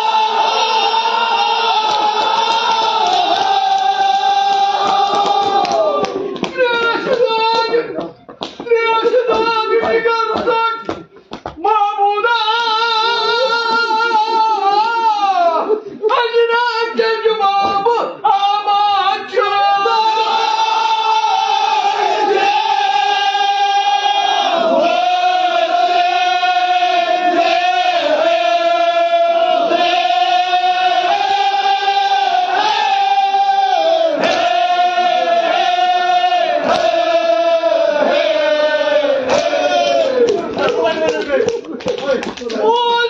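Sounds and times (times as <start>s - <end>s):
voices singing a slow lament: 0.0s - 7.8s, 18.4s - 40.8s.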